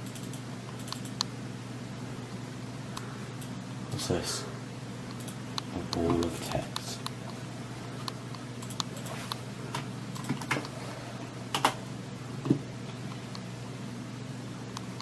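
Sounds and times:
keyboard and mouse clicks: 0.0s - 1.3s, 5.1s - 7.2s, 8.3s - 9.4s, 10.1s - 10.8s
low steady hum: 0.0s - 15.0s.

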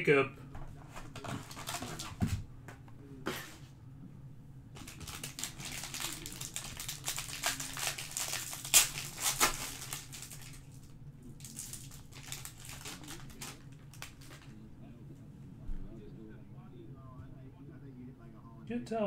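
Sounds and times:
foil wrapper crinkling: 1.1s - 2.2s, 4.8s - 14.6s
foil ripping: 1.2s - 2.2s, 4.8s - 14.6s.

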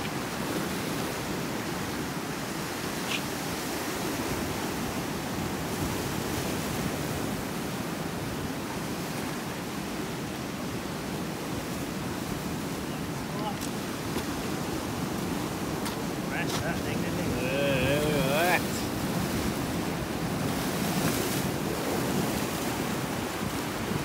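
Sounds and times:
ocean surf washing against rocks: 0.1s - 24.0s.

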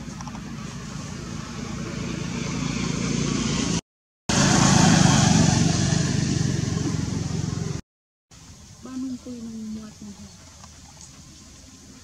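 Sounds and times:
vehicle engine passing by: 0.0s - 7.8s.

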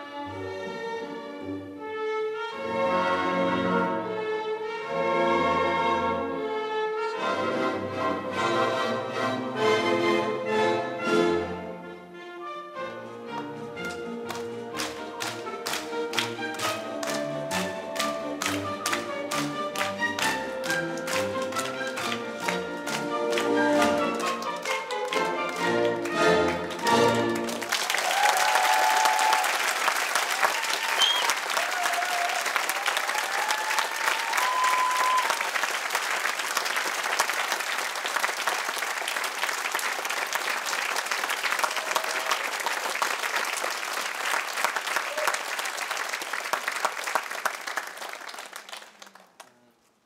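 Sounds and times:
audience applauding: 13.4s - 49.8s.

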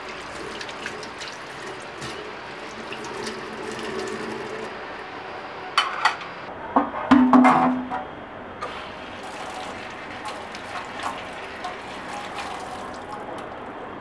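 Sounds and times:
tap water running into sink: 0.0s - 4.7s, 8.6s - 13.5s.

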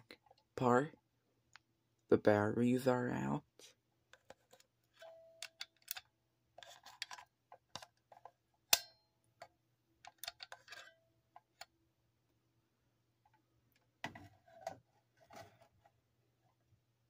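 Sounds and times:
short metallic ring: 8.8s - 9.0s.

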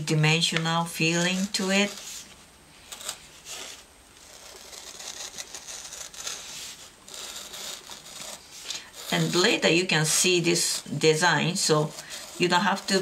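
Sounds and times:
pen scratching on paper: 3.0s - 8.4s, 9.0s - 13.0s.

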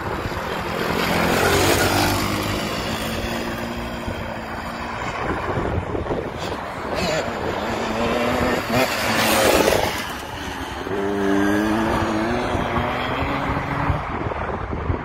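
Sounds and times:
dirt bike engine revving: 6.8s - 14.0s.

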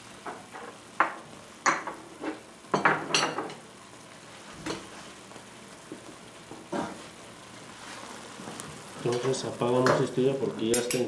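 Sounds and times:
faint sizzle: 0.0s - 11.0s.

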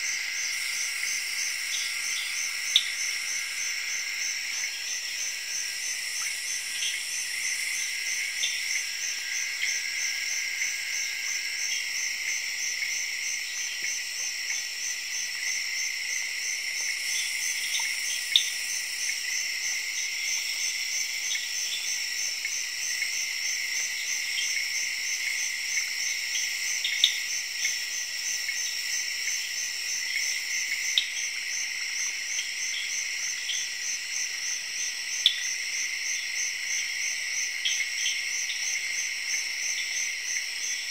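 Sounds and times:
insects shrill drone: 0.0s - 13.8s.

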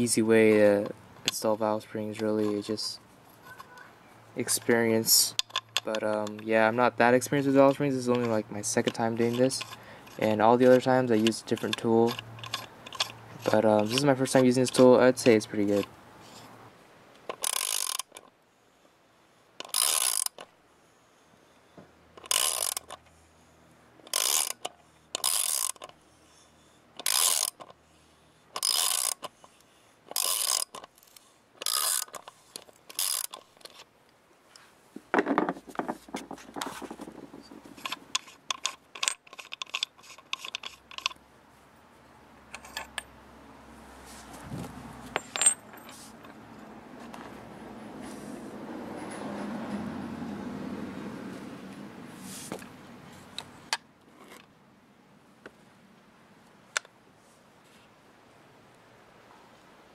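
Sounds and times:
ratchet wrench clicking: 7.7s - 14.9s, 17.3s - 18.2s, 19.6s - 20.5s, 22.2s - 23.0s, 24.0s - 26.0s, 27.0s - 27.8s, 28.6s - 29.3s, 30.1s - 33.8s, 37.8s - 41.2s.

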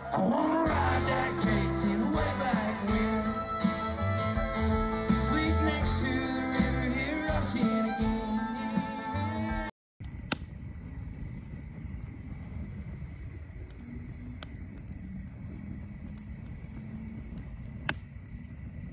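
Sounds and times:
sharp click: 10.3s - 10.5s.

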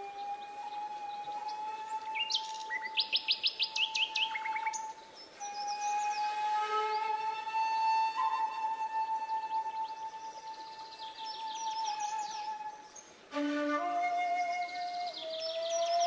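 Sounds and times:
birds chirping: 0.0s - 7.4s, 9.2s - 13.2s, 14.2s - 16.0s
background music with held notes: 13.3s - 16.0s.

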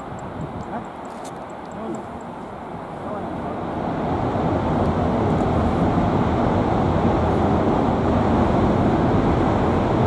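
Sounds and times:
turboprop engines droning overhead: 0.0s - 10.0s.

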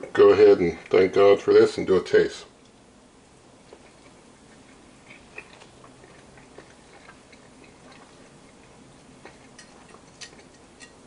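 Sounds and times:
cutlery clicking on plate: 9.6s - 11.0s.

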